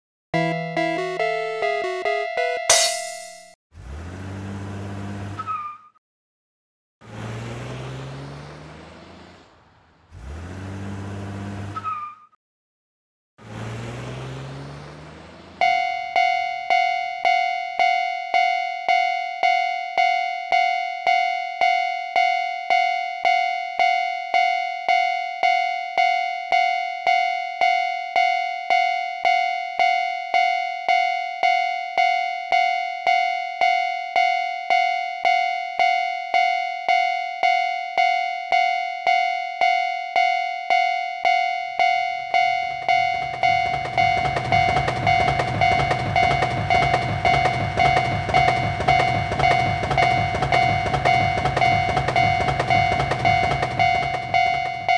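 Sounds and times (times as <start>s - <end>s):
railroad crossing bell ringing: 15.6s - 54.9s.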